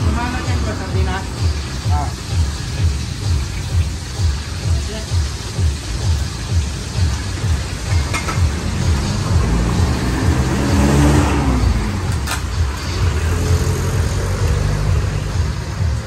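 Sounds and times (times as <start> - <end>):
vehicle engine rumbling: 5.8 - 16.0.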